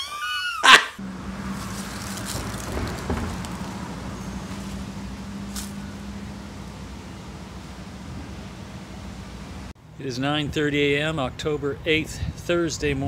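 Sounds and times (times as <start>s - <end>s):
distant traffic: 0.7s - 13.0s
steady low hum: 3.0s - 12.3s.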